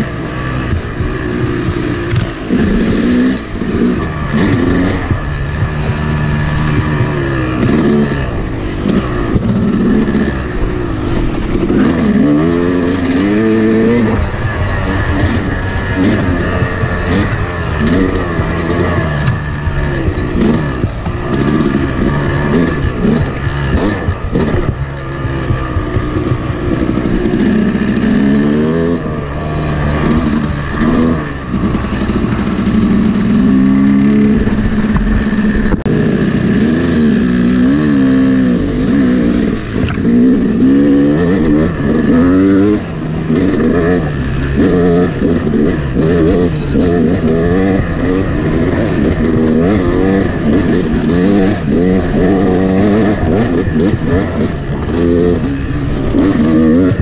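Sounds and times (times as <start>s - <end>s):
dirt bike engine revving: 0.0s - 57.0s
sharp click: 39.8s - 40.1s.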